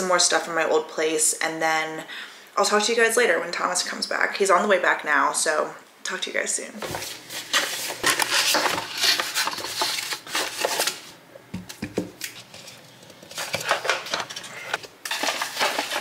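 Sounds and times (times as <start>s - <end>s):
cardboard packaging rustling: 6.8s - 16.0s.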